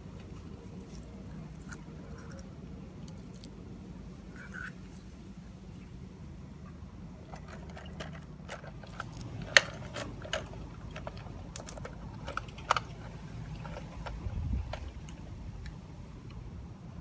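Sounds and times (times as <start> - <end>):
low steady rumble: 0.0 - 17.0
toy truck clicking over dirt: 7.2 - 15.7.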